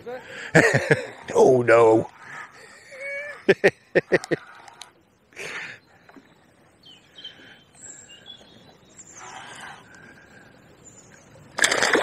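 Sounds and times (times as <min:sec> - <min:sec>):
bird chirps and whistled calls: 0:06.8 - 0:09.8.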